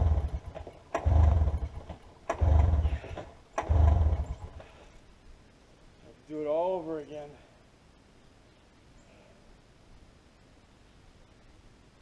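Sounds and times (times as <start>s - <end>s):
engine chugging without catching: 0.0s - 4.8s.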